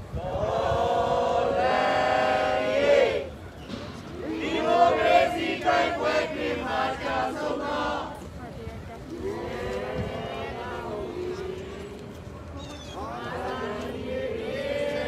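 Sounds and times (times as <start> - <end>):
group singing in unison: 0.2 - 3.3, 4.2 - 8.2, 9.2 - 12.1, 13.1 - 15.0.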